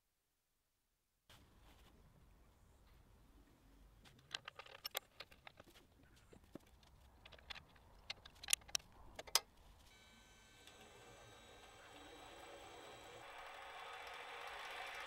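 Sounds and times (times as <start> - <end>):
metal clicks of key and screws: 4.2 - 5.7, 6.7 - 9.5
faint steady whine: 9.6 - 15.0.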